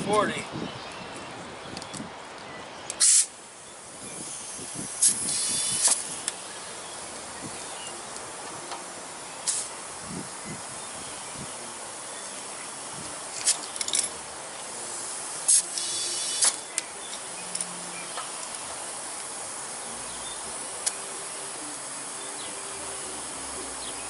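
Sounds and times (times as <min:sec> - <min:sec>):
compressed air hissing: 0:03.0 - 0:24.0
air chuck pops: 0:05.0 - 0:06.4, 0:15.5 - 0:16.9.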